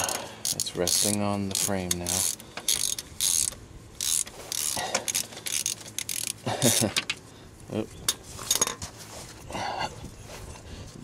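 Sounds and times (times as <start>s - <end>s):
socket ratchet clicking: 0.0s - 6.4s.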